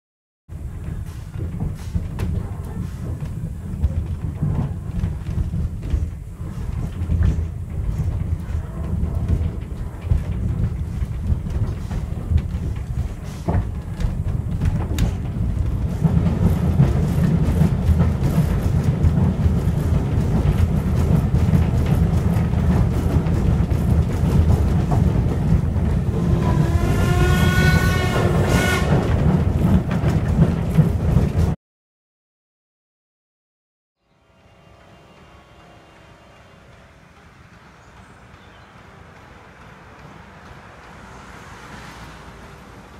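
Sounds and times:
railway carriage rumble: 0.5 - 31.6, 34.2 - 42.9
clicks over rail joints: 0.6 - 31.6
steam locomotive whistle: 26.2 - 29.2.

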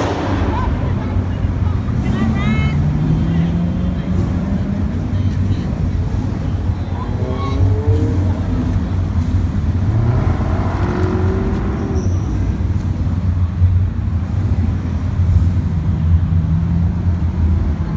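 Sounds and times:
car engines in traffic: 0.0 - 17.9.

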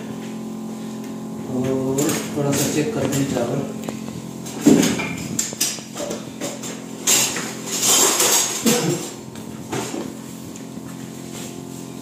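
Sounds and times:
metal clanking against pot: 4.8 - 9.2.

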